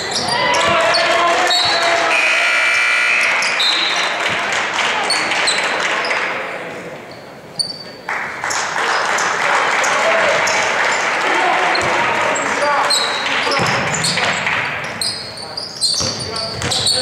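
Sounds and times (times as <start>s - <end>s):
sneakers squeaking on hardwood: 0.0s - 2.0s, 7.0s - 8.0s, 11.7s - 17.0s
voices of players and spectators: 0.0s - 17.0s
basketball bouncing: 13.2s - 15.0s, 15.9s - 17.0s.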